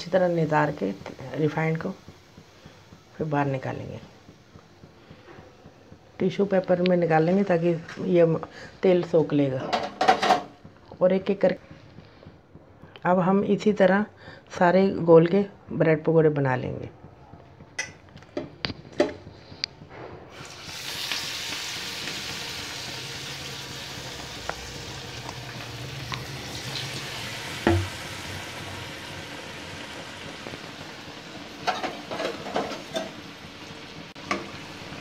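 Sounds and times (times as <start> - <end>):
bread sizzling in hot oil: 0.0 - 8.8, 20.3 - 35.0
sharp knock: 27.7 - 28.0.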